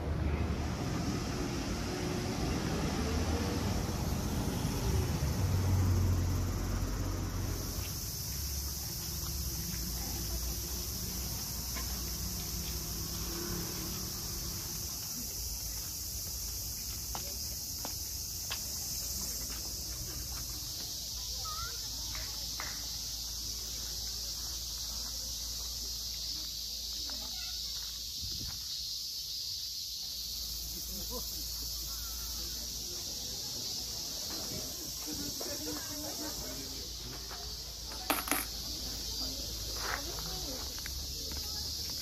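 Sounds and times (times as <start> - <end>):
cicadas chorus: 0.0 - 42.0
road traffic rumble: 0.0 - 42.0.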